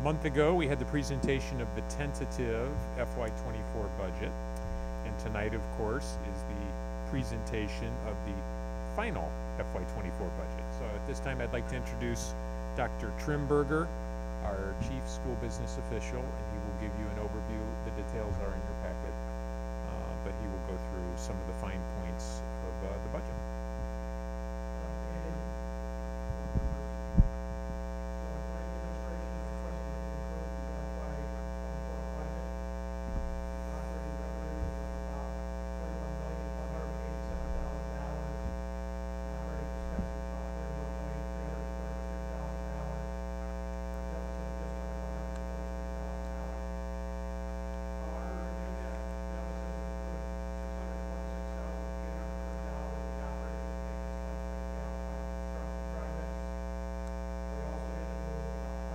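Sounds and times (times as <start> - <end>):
electrical mains hum: 0.0 - 58.9
faint distant voice: 14.4 - 19.1, 48.0 - 53.9, 54.7 - 56.5.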